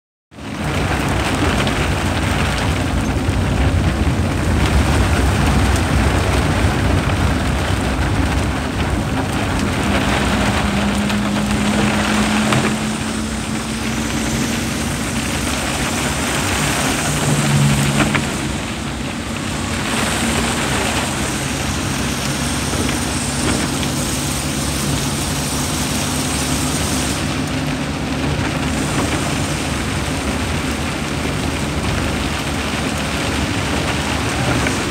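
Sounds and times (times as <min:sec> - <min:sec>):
tyre and road noise: 0:00.3 - 0:34.9
low engine hum: 0:00.4 - 0:34.9
rain on windshield: 0:00.4 - 0:34.9.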